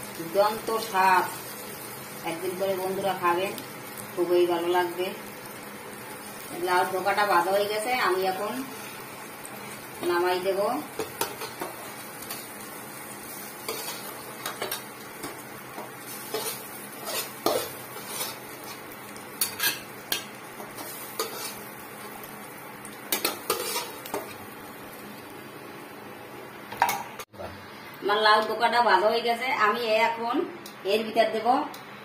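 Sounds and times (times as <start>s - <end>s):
oil sizzling: 0.0s - 27.3s
metal spatula scraping frying pan: 13.4s - 15.4s, 16.0s - 21.7s, 23.1s - 24.4s.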